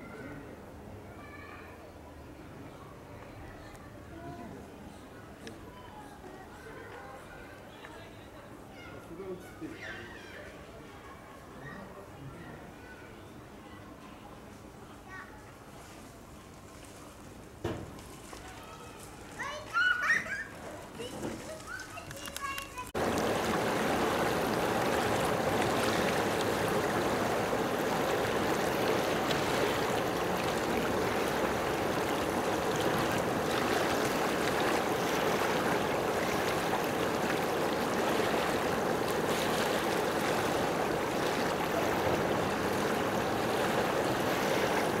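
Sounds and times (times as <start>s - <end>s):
rushing water: 21.1s - 45.0s.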